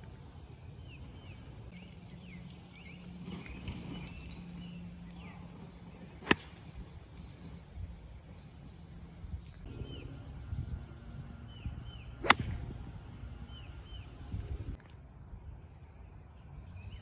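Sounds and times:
golf club striking ball: 6.2 - 6.8, 12.2 - 12.8.

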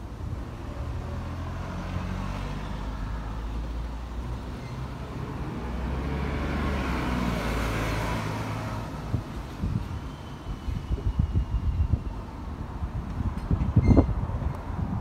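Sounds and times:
motor vehicle passing: 0.6 - 9.8.

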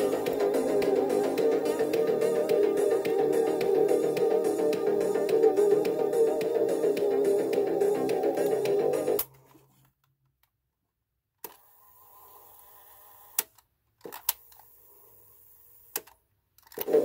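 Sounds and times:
cassette music playing: 0.0 - 9.3.

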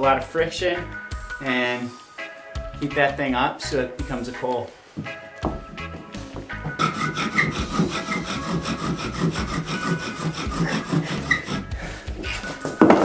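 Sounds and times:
bow drill grinding with high squeak: 6.8 - 11.7.

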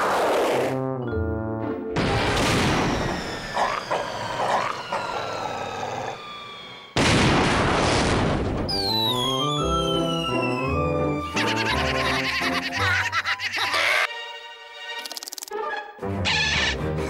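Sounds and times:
cartoon explosion: 2.0 - 3.9, 7.0 - 8.8
rushing rumble with falling whistles: 2.7 - 7.0.

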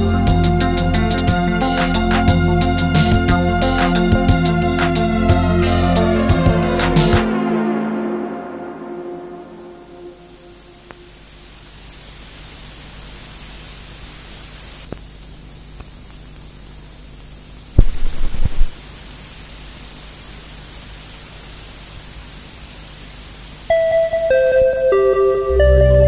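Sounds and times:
static hiss: 0.0 - 7.3, 9.0 - 26.0
loud low crackling thumps: 17.8 - 18.8.

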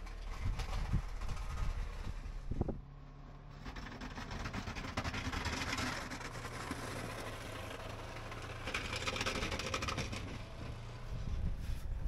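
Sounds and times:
plow blade pushing snow: 0.0 - 12.0
plow vehicle engine running: 0.0 - 12.0.

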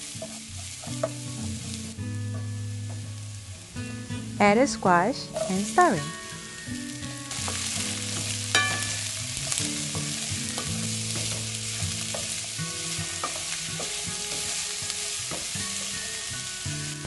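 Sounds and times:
vegetables sizzling in oil: 0.0 - 17.0
wooden spatula stirring: 7.3 - 16.1.

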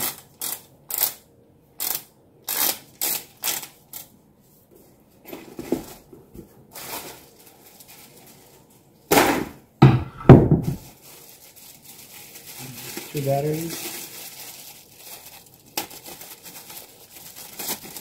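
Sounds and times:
thumps and rustles of handling: 4.7 - 8.5, 9.8 - 11.0.

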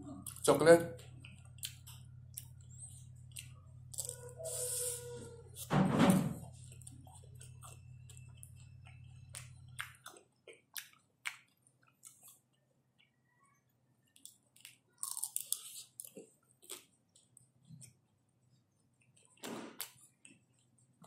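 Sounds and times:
low hum: 0.0 - 10.1
crunchy chewing of ice cream bar: 0.1 - 5.7, 6.5 - 21.0.

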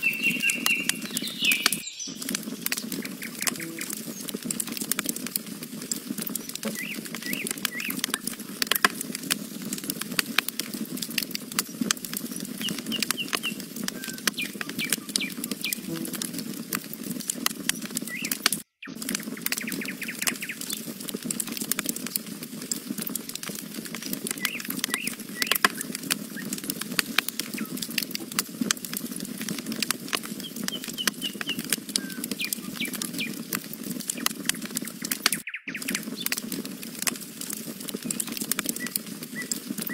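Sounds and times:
faint bird chirps: 0.0 - 4.4, 6.4 - 8.3, 11.7 - 16.2, 30.4 - 33.5, 34.2 - 36.3
campfire crackling and popping: 0.0 - 39.9
flame rustling: 0.0 - 39.9.

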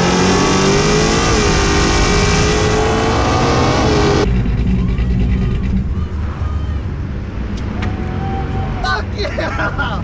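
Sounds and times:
truck engine at full throttle: 0.0 - 8.0.

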